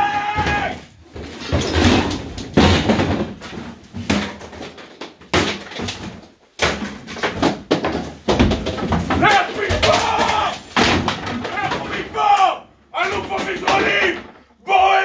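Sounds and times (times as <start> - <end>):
hammer smashing table: 0.4 - 12.0.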